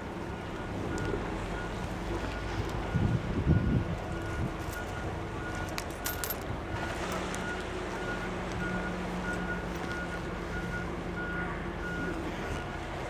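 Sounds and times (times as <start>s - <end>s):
engine noise: 0.0s - 13.0s
low engine hum: 0.0s - 13.0s
metallic clinks: 5.6s - 6.5s.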